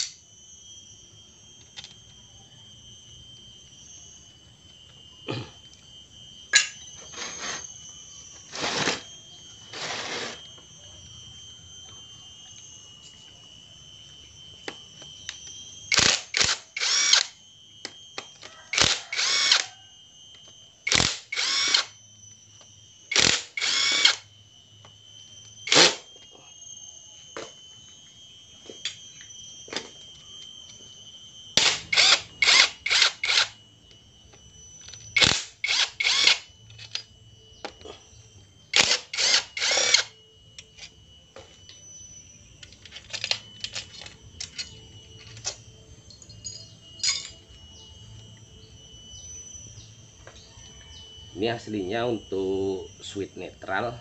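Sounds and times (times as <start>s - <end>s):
power driver spinning in bursts: 15.9s - 17.3s, 18.7s - 19.7s, 20.8s - 21.9s, 23.1s - 24.2s, 31.6s - 33.7s, 35.1s - 36.6s, 38.7s - 40.1s.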